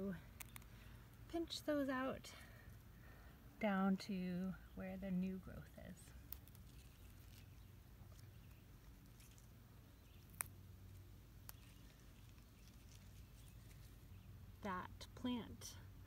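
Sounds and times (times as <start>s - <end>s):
plant stems snapping: 0.3s - 0.7s, 6.2s - 13.9s.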